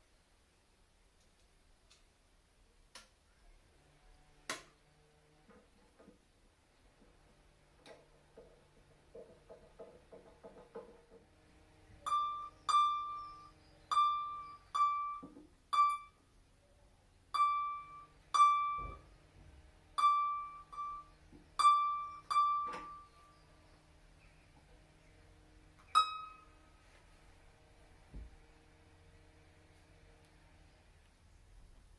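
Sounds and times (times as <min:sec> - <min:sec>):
dull knock: 0:08.4 - 0:11.3.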